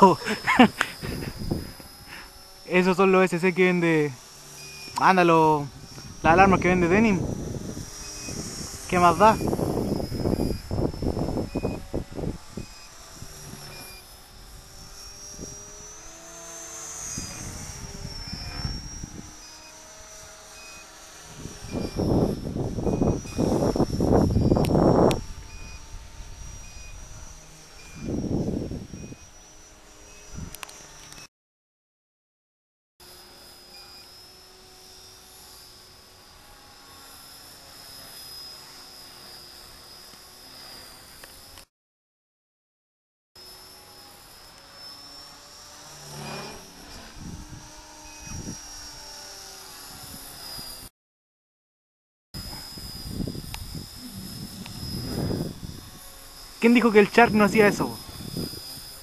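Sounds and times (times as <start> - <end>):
rc helicopter motor whine: 0.0 - 31.3, 33.0 - 41.7, 43.4 - 50.9, 52.4 - 59.0
electronic alarm beeps: 4.6 - 5.2, 10.3 - 11.9.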